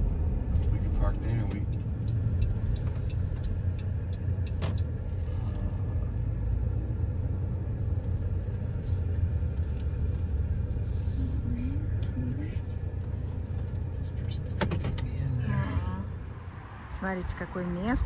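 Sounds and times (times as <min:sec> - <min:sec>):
car rumble from inside cabin: 0:00.0 - 0:18.0.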